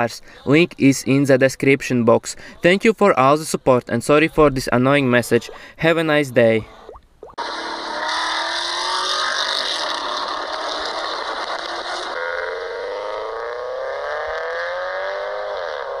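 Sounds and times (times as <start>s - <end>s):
car engine revving: 7.4s - 16.0s.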